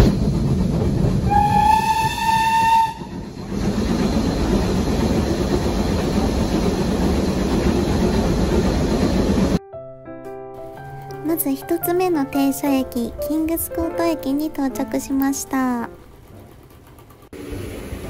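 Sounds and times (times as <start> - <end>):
train carriages rumbling: 0.0 - 9.6, 10.8 - 18.0
steam locomotive whistle: 1.3 - 3.2.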